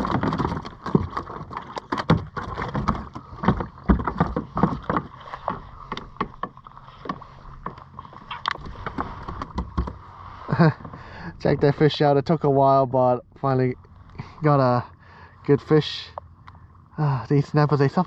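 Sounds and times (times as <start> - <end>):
gear knocking on plastic kayak: 0.0 - 10.0.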